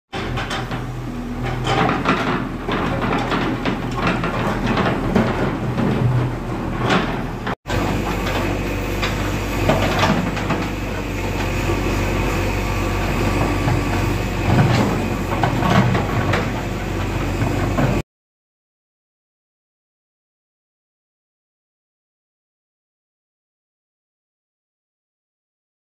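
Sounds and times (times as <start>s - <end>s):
diesel engine running: 0.1s - 18.0s.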